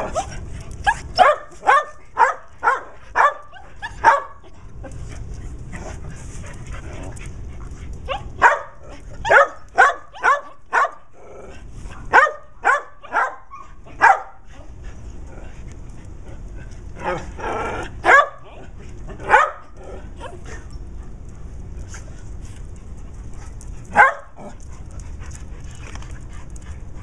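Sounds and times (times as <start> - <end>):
dogs barking: 0.0 - 4.5, 8.1 - 11.1, 12.1 - 14.5, 18.0 - 18.6, 19.2 - 19.8, 23.8 - 24.6.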